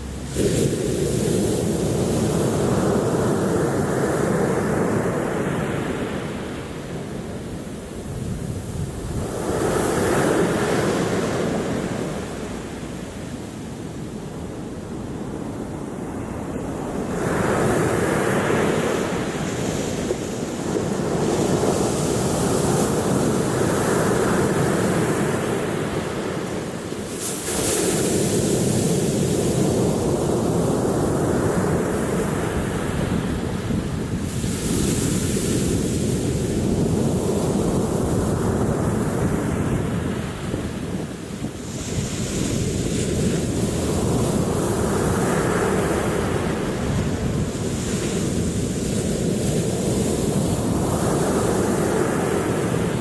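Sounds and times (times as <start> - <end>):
waves breaking on pebble beach: 17.3 - 53.0.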